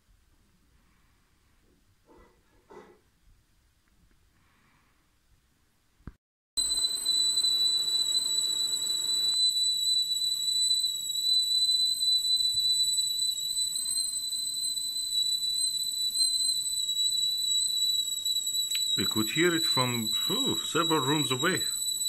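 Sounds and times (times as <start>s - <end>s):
kettle whistling: 6.6s - 22.0s.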